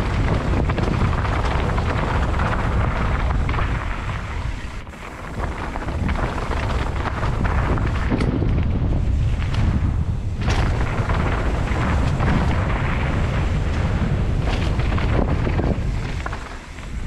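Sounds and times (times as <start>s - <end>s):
bike clicks and knocks: 0.0s - 17.0s
bike rattling on gravel trail: 0.0s - 17.0s
wind buffeting microphone: 0.0s - 17.0s.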